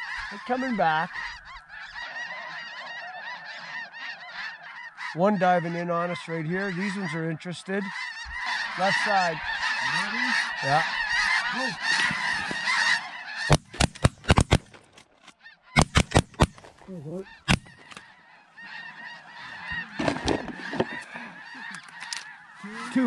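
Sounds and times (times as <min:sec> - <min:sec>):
flock of geese calling: 0:00.0 - 0:23.0
geese honking: 0:00.0 - 0:23.0
sharp loud clicks: 0:13.5 - 0:15.0, 0:15.8 - 0:16.6.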